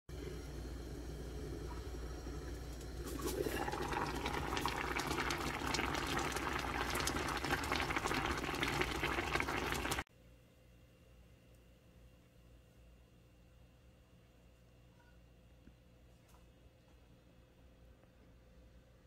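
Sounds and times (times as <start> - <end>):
stew bubbling in a pot: 0.2 - 10.1.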